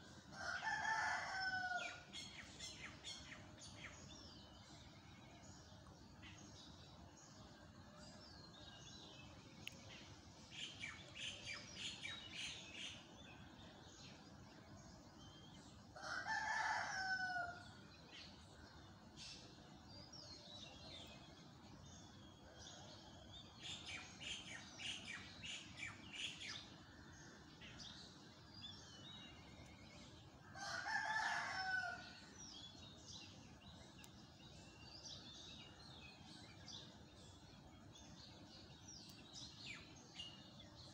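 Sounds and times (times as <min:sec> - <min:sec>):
faint steady background noise: 0:00.0 - 0:40.9
rooster crowing: 0:00.4 - 0:02.0, 0:30.6 - 0:32.1
small birds chirping: 0:18.3 - 0:40.9.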